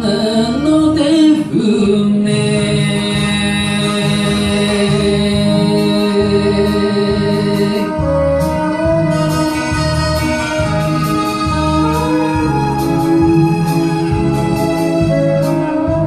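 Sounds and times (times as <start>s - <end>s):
karaoke backing track: 0.0s - 16.0s.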